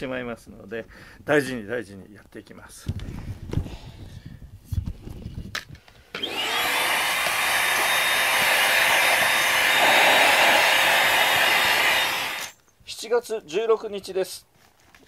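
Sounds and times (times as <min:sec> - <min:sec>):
handheld vacuum cleaner running: 0:06.2 - 0:12.5.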